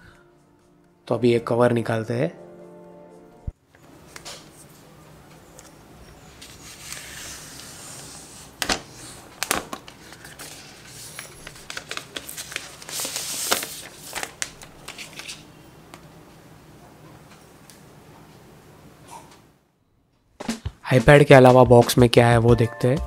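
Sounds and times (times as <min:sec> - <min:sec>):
plastic wrap crinkling and crackling: 0:08.5 - 0:15.5.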